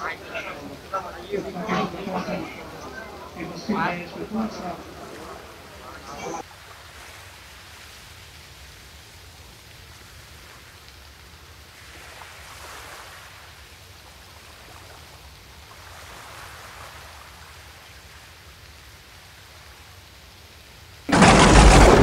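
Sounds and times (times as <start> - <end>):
faint steady hiss: 0.0 - 21.2
low hum: 21.1 - 22.0.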